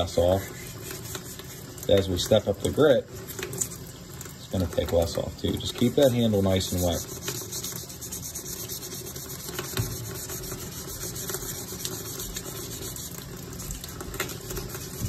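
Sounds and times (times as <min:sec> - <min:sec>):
wet sandpaper scrubbing: 0:00.0 - 0:02.4, 0:05.6 - 0:13.8, 0:14.5 - 0:15.0.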